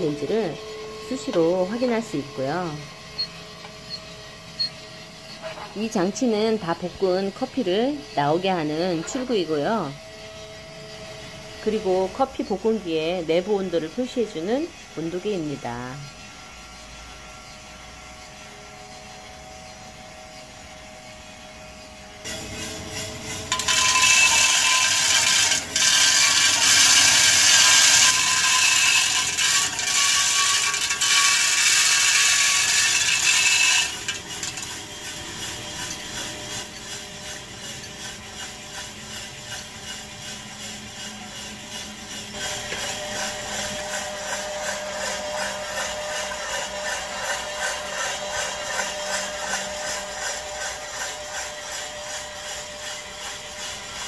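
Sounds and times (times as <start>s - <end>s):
beans tumbling in rotating drum: 0.0s - 16.0s, 22.2s - 54.0s
coffee roaster humming: 0.0s - 54.0s
beans poured with rattling hiss: 22.3s - 53.9s.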